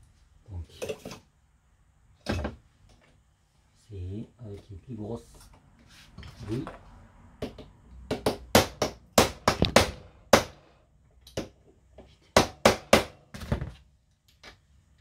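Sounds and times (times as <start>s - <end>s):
hammer strikes on metal: 7.4s - 10.6s, 12.4s - 13.2s.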